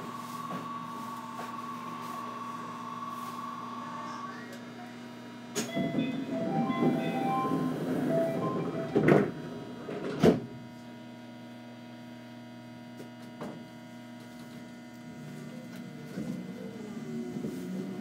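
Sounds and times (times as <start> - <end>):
train and station equipment hum: 0.0 - 11.0, 14.9 - 18.0
electronic chime tones: 5.7 - 9.0.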